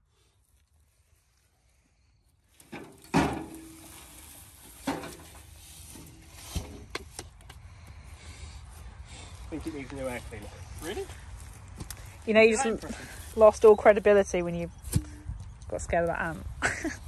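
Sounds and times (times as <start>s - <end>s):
rustling: 2.5s - 7.9s
metal parts knocking on grass: 2.6s - 7.4s.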